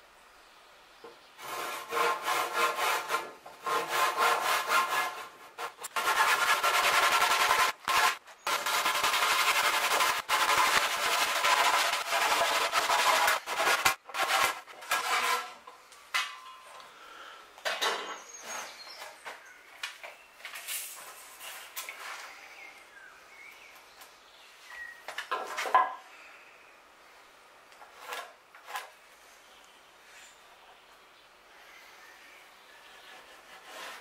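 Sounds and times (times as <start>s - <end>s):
tool scraping wood: 1.4s - 15.8s, 27.8s - 28.9s, 32.8s - 34.0s.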